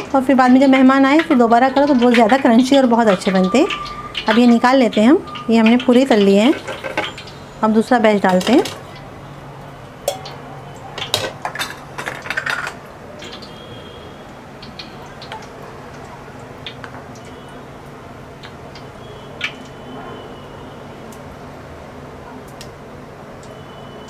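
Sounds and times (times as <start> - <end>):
metal utensils clattering on cookware: 0.8 - 7.3, 8.2 - 9.0, 11.0 - 12.8.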